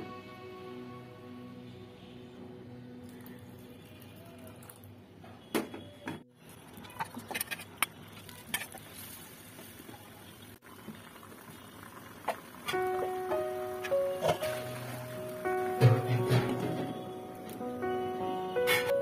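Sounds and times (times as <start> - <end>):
curry simmering and bubbling: 6.3 - 13.2.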